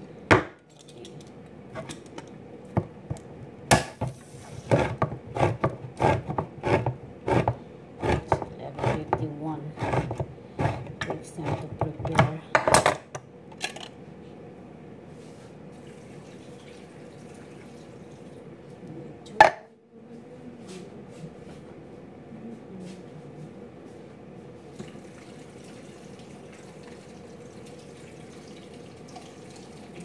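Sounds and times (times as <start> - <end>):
low background hum: 0.0 - 30.0
water pouring into a steel pot: 24.8 - 30.0.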